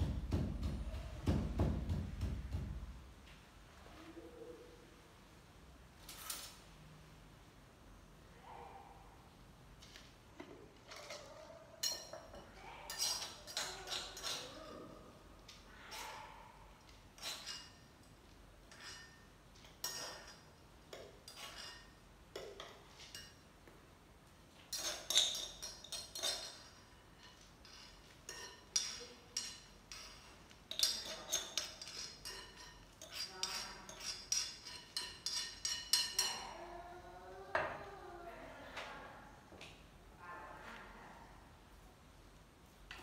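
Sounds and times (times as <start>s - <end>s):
utensil scraping against a bowl: 10.7s - 23.4s, 24.7s - 36.6s.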